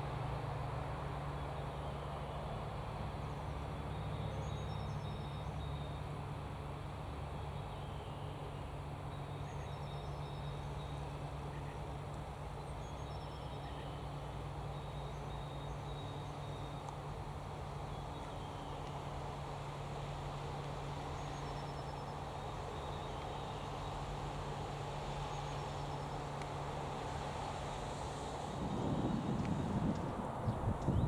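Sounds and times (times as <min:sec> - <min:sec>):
faint bird chirps: 0:12.6 - 0:14.1.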